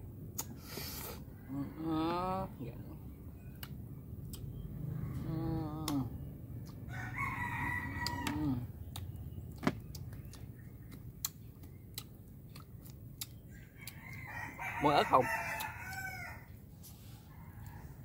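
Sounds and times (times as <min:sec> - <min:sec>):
rooster crowing: 0:06.9 - 0:08.6, 0:13.6 - 0:16.6.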